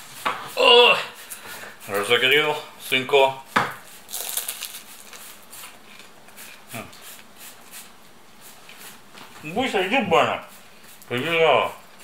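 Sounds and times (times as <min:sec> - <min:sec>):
flaky pastry crust crackling: 0:04.0 - 0:06.2.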